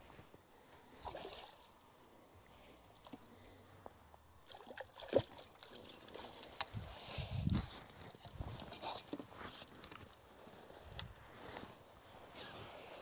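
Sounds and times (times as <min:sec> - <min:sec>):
water splashing and sloshing: 0:04.2 - 0:10.0.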